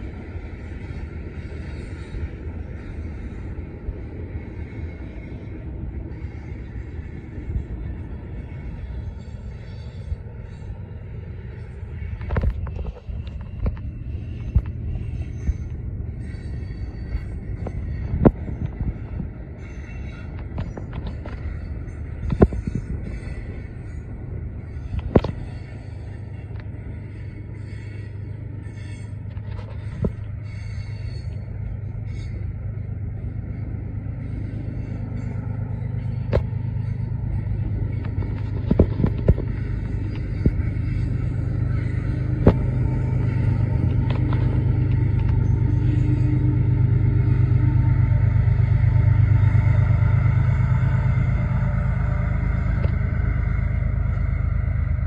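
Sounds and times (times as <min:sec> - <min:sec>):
diesel locomotive engine running: 0:00.0 - 0:55.0
freight train rumbling past: 0:00.0 - 0:55.0
wheels and couplers clanking: 0:11.6 - 0:55.0.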